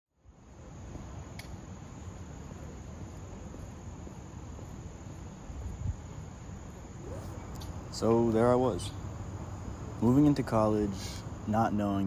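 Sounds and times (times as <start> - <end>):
insects droning: 0.2 - 12.0.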